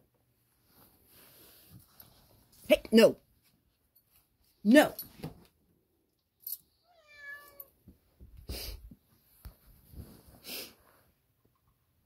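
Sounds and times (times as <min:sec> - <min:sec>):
cat meowing: 0:06.8 - 0:07.8
rustling and scuffling: 0:07.8 - 0:11.1.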